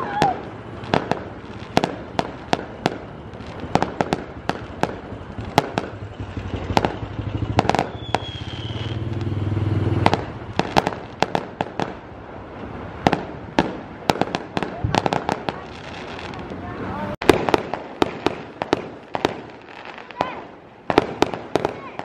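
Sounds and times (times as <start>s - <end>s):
fireworks cracking and banging: 0.0s - 22.0s
vehicle engine hum: 5.0s - 10.6s.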